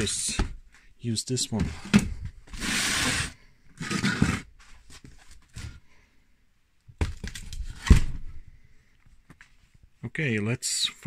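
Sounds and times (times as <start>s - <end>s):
metal scraping on wood: 2.5s - 4.6s.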